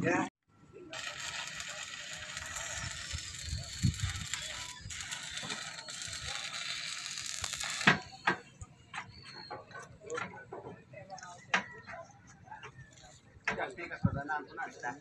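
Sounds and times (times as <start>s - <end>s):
welding arc crackling and hissing: 0.9s - 8.6s.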